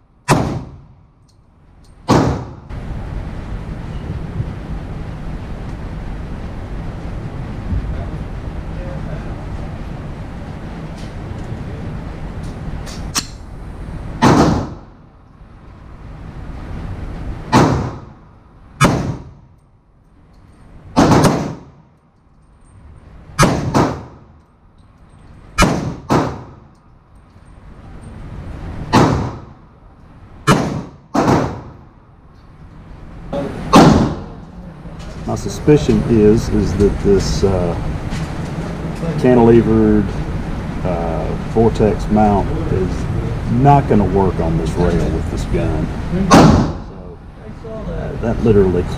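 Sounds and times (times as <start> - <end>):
gunshots ringing indoors: 0.2 - 1.0, 2.0 - 2.7, 14.2 - 15.0, 17.5 - 18.2, 18.8 - 19.4, 21.0 - 21.8, 23.4 - 24.3, 25.6 - 26.6, 28.9 - 29.6, 30.4 - 31.9, 33.7 - 34.4, 46.3 - 46.8.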